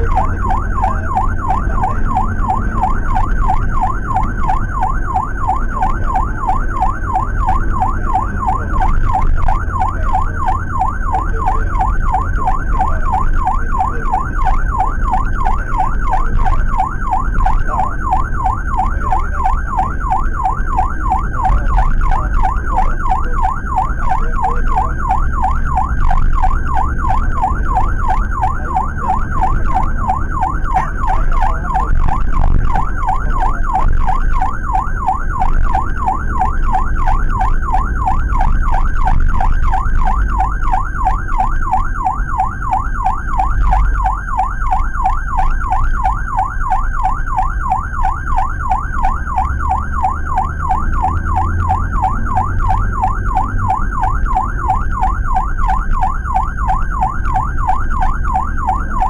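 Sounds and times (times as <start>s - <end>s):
ambulance siren yelping: 0.0s - 59.0s
engine and road rumble: 0.0s - 59.0s.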